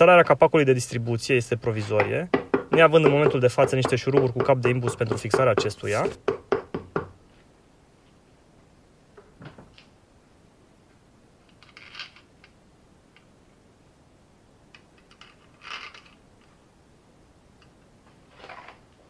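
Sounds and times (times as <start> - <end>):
metal parts scraping: 11.5 - 12.3, 15.1 - 16.2.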